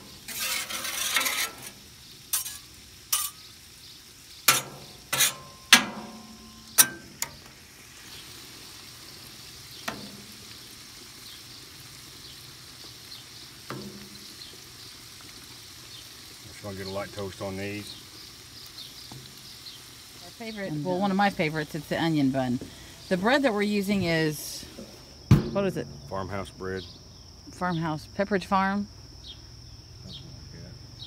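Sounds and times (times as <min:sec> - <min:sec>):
metal spatula scraping griddle: 0:00.0 - 0:03.5, 0:04.5 - 0:07.4, 0:13.7 - 0:14.3
meat and bread sizzling: 0:00.0 - 0:28.5.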